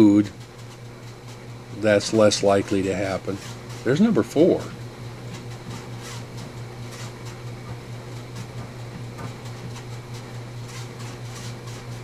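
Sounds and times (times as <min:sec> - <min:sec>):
steady low machine hum: 0:00.0 - 0:12.0.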